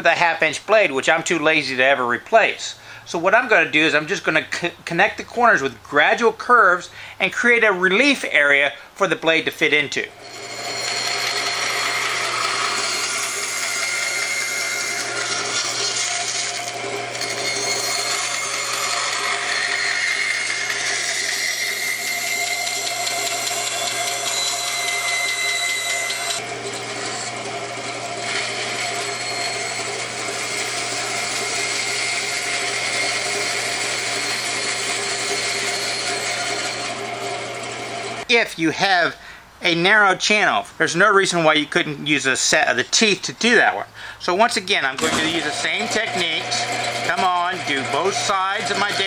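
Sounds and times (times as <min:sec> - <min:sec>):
band saw motor humming: 0:10.0 - 0:38.3, 0:44.2 - 0:49.0
saw blade cutting wood: 0:10.1 - 0:38.2, 0:44.4 - 0:49.0.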